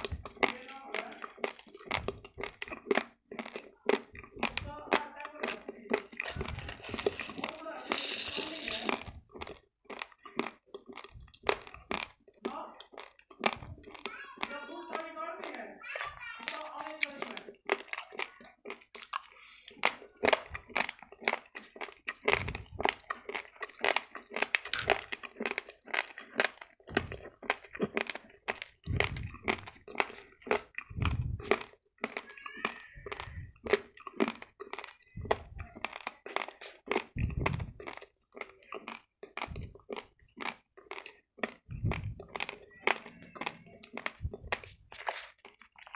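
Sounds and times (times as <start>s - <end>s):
rice grains crunching: 0.0s - 45.9s
dull low thumps: 30.9s - 31.4s, 37.2s - 37.8s, 41.7s - 42.3s, 44.2s - 44.9s.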